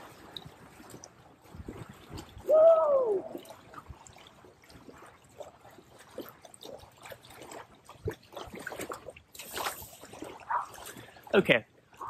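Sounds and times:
water sloshing: 0.0s - 12.0s
person yelling: 2.5s - 3.4s.

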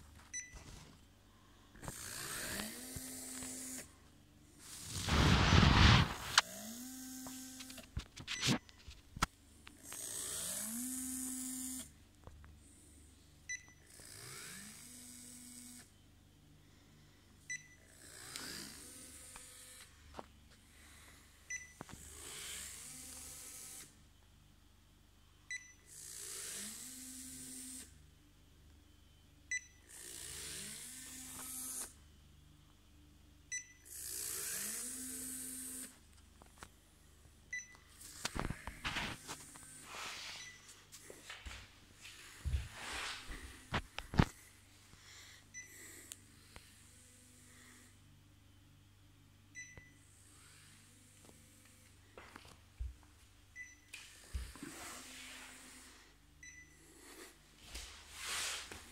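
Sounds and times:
small motor whine: 1.8s - 4.0s, 4.6s - 8.6s, 9.7s - 12.0s, 13.8s - 16.0s, 17.8s - 24.1s, 25.8s - 28.1s, 29.8s - 32.1s, 33.8s - 36.1s, 38.0s - 48.2s, 50.0s - 52.3s, 54.0s - 58.9s.

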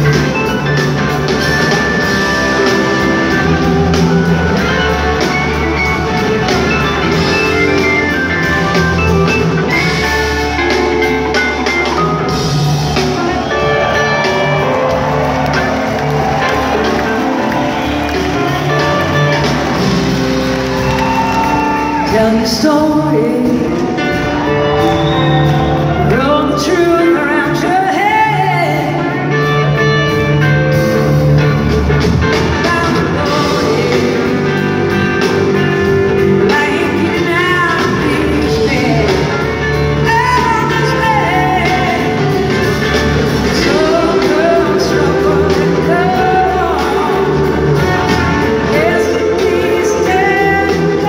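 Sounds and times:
bass: 0.0s - 51.0s
drums: 0.0s - 51.0s
electric guitar: 0.0s - 51.0s
keyboards: 0.0s - 51.0s
person singing: 32.4s - 51.0s.

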